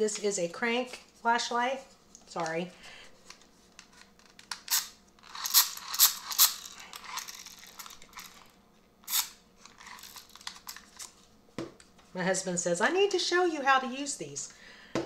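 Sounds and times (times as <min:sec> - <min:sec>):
flashlight crank rattling clicks: 0:04.3 - 0:08.4, 0:09.0 - 0:11.1
crank and gears rattling: 0:05.2 - 0:08.4.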